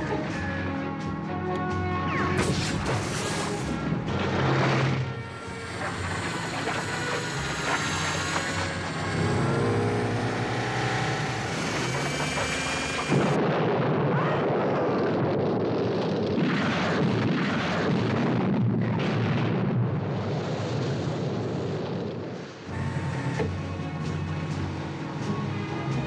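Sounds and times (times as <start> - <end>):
orchestral film score: 0.0 - 13.4
dense rushing chase effects: 2.6 - 13.7.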